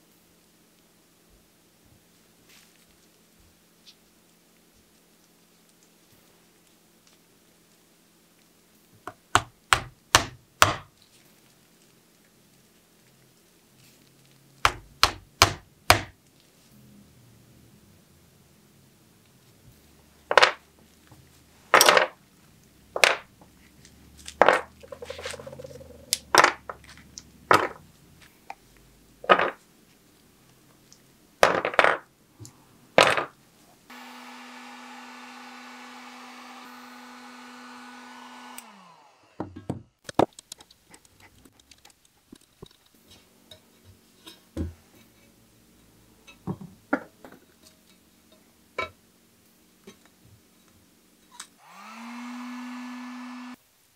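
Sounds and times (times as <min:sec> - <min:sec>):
heat gun blowing: 0:33.9 - 0:39.5, 0:51.6 - 0:53.6.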